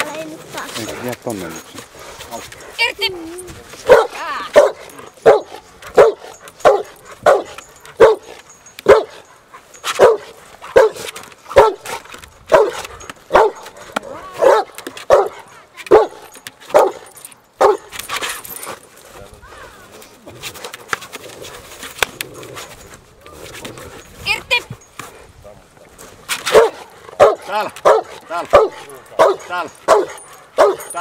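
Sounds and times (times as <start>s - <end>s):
dog barking: 3.8s - 9.3s, 9.9s - 13.8s, 14.4s - 17.9s, 26.5s - 31.0s.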